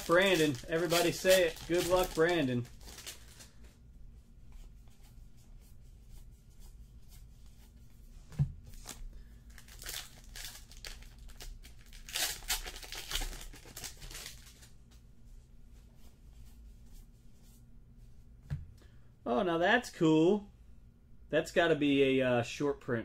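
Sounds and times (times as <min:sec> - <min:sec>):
card pack wrapper tearing and crinkling: 0:00.0 - 0:03.5, 0:08.7 - 0:14.7.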